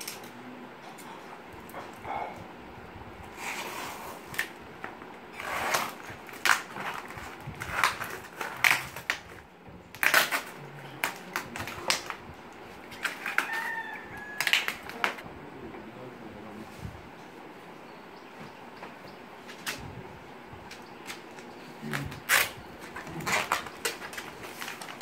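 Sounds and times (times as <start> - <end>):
cardboard crackling and ripping: 5.3 - 12.2, 12.8 - 15.2, 21.1 - 25.0.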